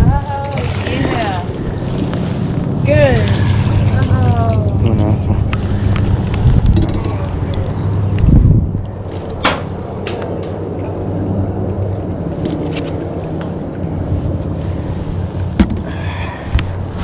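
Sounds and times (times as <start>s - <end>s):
low rumble: 0.0s - 17.0s
fishing tackle knocking and clicking: 6.7s - 7.2s.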